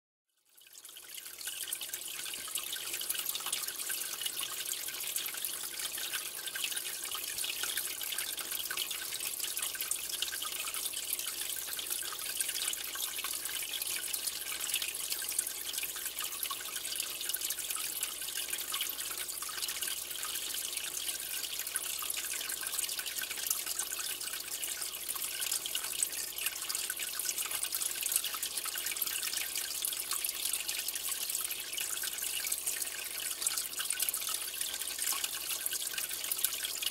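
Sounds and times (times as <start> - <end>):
aquarium water trickling: 0.3 - 36.9.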